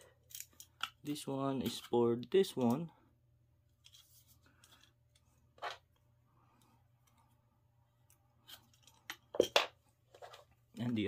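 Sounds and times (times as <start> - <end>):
soft plastic clicks and rubs: 3.7 - 7.4.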